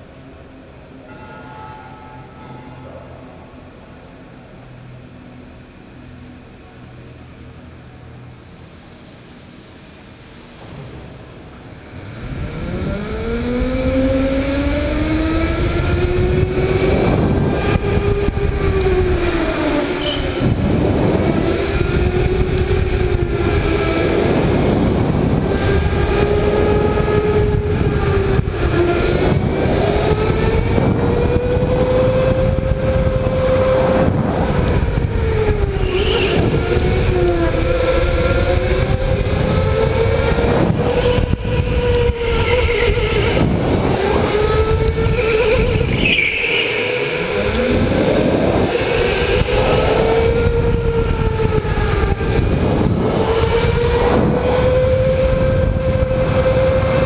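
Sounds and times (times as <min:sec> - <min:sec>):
electric go-kart motor whining: 0:11.8 - 0:57.0.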